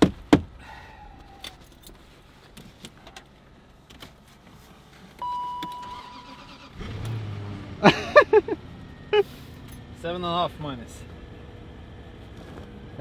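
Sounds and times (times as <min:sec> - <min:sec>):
dashboard electronic beep: 0:05.2 - 0:06.2.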